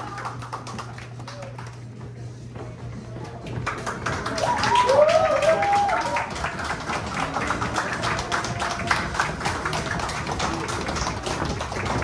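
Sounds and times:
audience clapping: 0.0s - 2.0s, 3.2s - 12.0s
faint waltz music: 1.1s - 4.2s.

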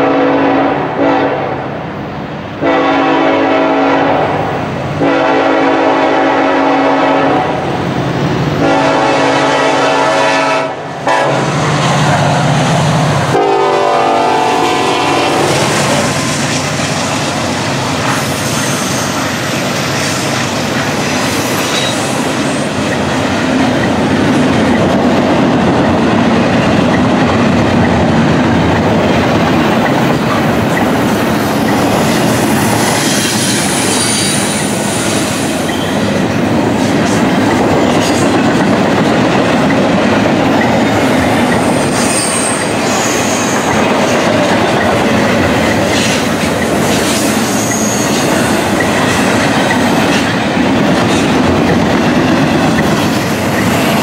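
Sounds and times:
train wheels rumbling on rail: 0.0s - 54.0s
high-pitched wheel squeals: 18.2s - 19.4s, 32.7s - 36.1s, 41.6s - 43.7s, 47.2s - 48.4s.

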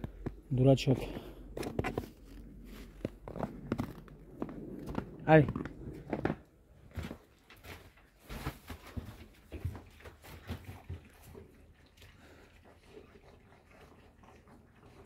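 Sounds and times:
puppies lapping food: 9.5s - 15.0s.

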